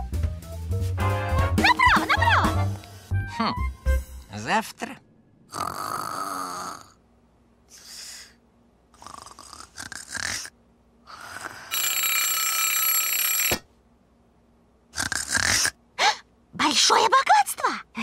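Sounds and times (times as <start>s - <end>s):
cartoon snoring: 5.5s - 7.0s, 8.9s - 11.7s, 14.9s - 15.8s
alarm clock ringing: 11.7s - 13.6s.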